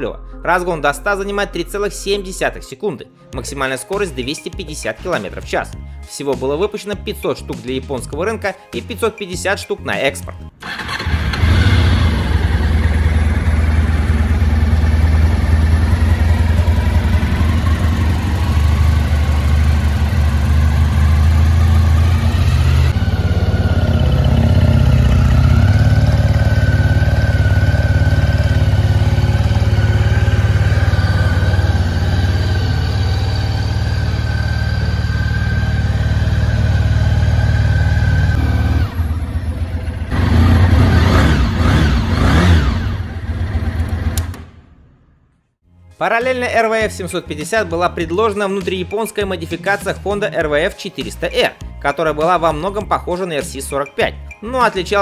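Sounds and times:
motorcycle engine idling: 10.6s - 44.3s.

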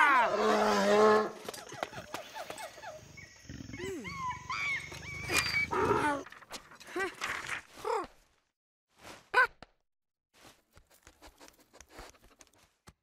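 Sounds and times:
rough animal growl: 3.4s - 4.2s, 5.6s - 6.3s.

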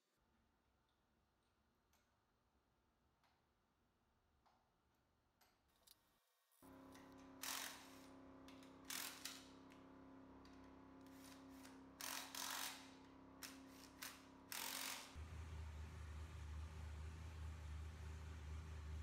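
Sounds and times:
power driver whirring: 11.3s - 15.5s
steady low hum: 15.2s - 19.0s.

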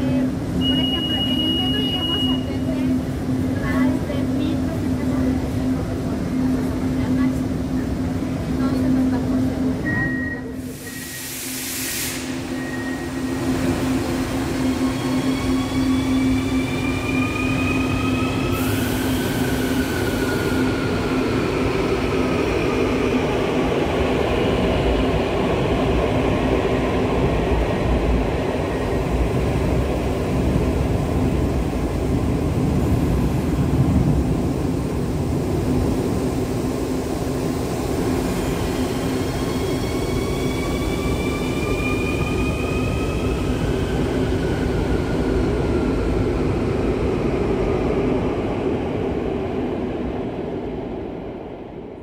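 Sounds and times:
brief hiss: 10.7s - 12.5s.

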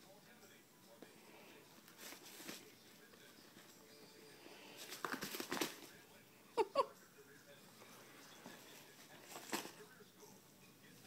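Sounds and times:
rabbit chewing plastic bag: 1.7s - 3.7s, 4.6s - 6.2s, 8.4s - 10.1s.

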